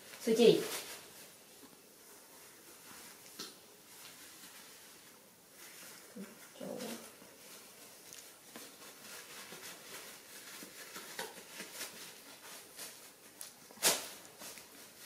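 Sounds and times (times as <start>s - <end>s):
diaper rustling and crinkling: 0.0s - 15.0s.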